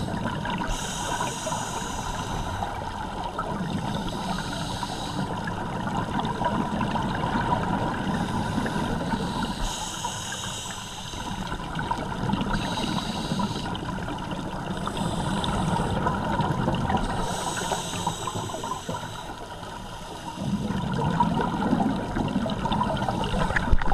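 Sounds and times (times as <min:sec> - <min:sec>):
regulator hissing inhales: 0:00.6 - 0:02.9, 0:04.1 - 0:05.4, 0:08.2 - 0:11.6, 0:12.5 - 0:13.9, 0:14.8 - 0:16.0, 0:17.2 - 0:20.5
bubbling exhales: 0:20.3 - 0:23.9.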